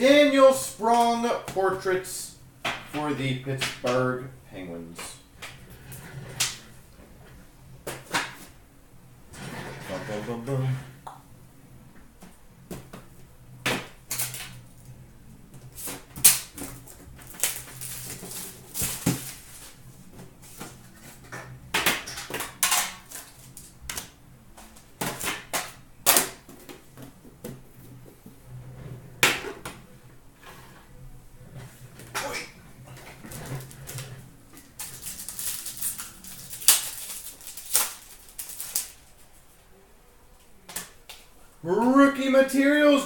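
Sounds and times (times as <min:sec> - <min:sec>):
foil packs rustling: 0:15.8 - 0:21.2, 0:32.9 - 0:39.5.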